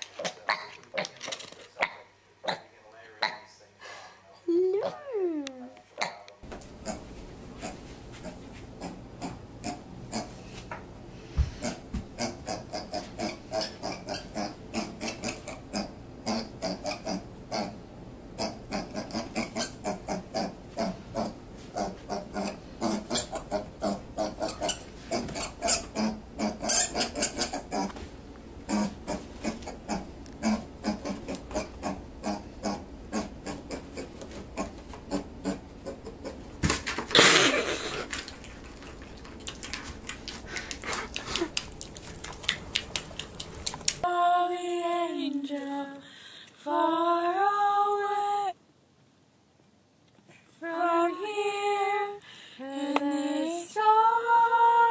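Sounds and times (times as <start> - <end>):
piglet grunting: 4.7 - 6.2, 11.6 - 17.8, 18.4 - 28.0, 28.6 - 36.5, 37.1 - 44.0.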